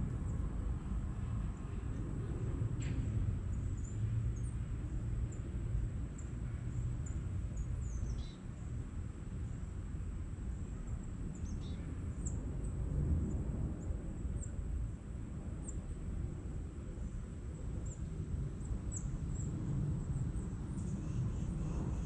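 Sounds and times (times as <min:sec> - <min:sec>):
small birds chirping: 0:07.0 - 0:08.4.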